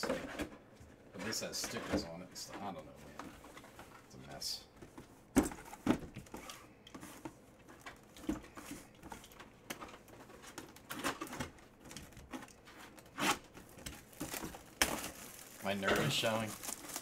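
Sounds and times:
plastic wrap rustling: 0:04.9 - 0:17.0.

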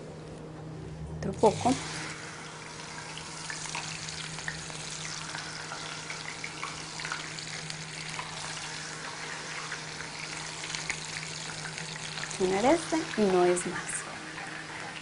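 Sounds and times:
food sizzling in hot oil: 0:01.4 - 0:15.0.

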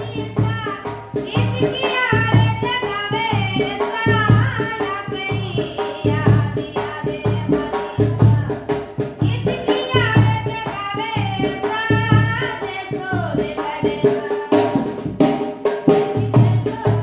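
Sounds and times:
woman singing high: 0:00.0 - 0:08.6, 0:09.2 - 0:14.8, 0:15.9 - 0:17.0
drum beaten in steady rhythm: 0:00.0 - 0:17.0.

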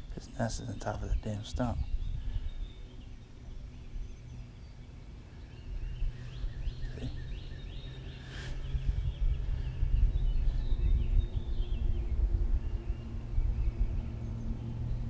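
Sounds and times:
bird chirping: 0:00.0 - 0:15.0
wind rumble on microphone: 0:00.0 - 0:15.0.

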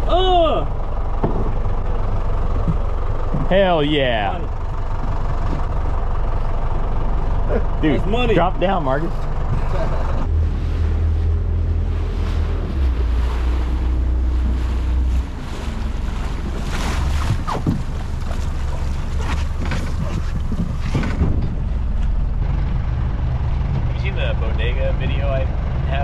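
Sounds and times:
motorboat engine running: 0:00.0 - 0:26.0
water splashing off bow: 0:10.2 - 0:22.2.

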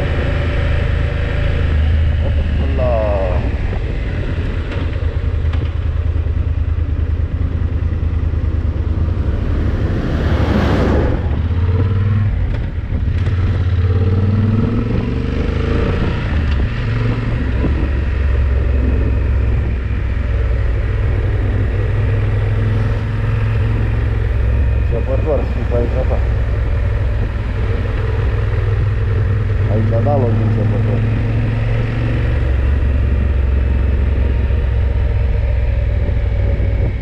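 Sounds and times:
motorcycle engine droning: 0:00.0 - 0:37.0
rushing noise: 0:07.2 - 0:14.0.

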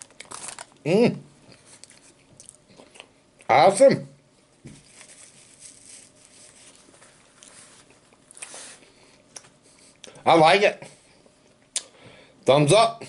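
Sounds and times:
paper rustling: 0:00.0 - 0:00.7, 0:04.7 - 0:07.9.

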